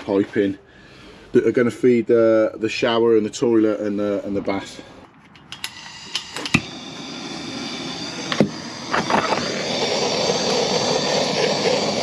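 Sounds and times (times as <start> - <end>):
blowtorch flame hissing: 5.6 - 12.0.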